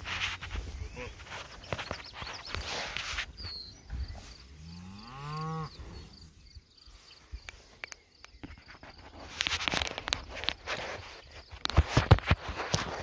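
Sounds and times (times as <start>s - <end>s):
cow mooing: 4.6s - 6.1s.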